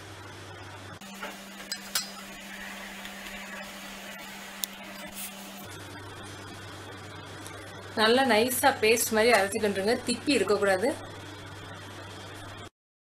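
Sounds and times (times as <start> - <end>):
faint steady hum: 0.0 - 12.7
steel jar and lid clinking: 1.7 - 2.3.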